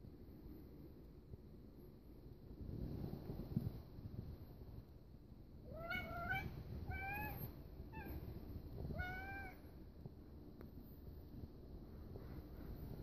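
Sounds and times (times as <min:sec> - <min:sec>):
cat meowing: 0:05.7 - 0:08.2, 0:08.9 - 0:09.7.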